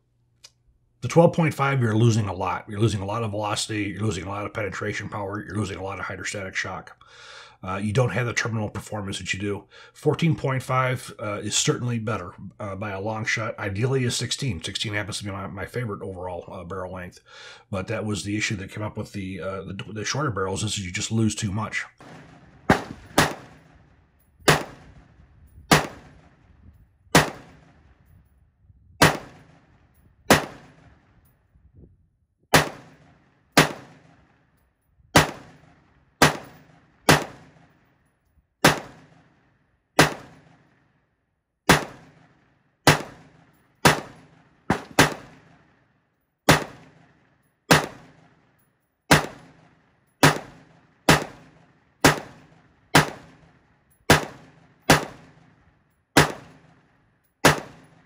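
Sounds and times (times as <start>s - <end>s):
rifle shots with echo: 22.0s - 28.0s, 29.0s - 31.2s, 32.5s - 34.4s, 35.2s - 37.9s, 38.6s - 40.8s, 41.7s - 45.9s, 46.5s - 58.0s.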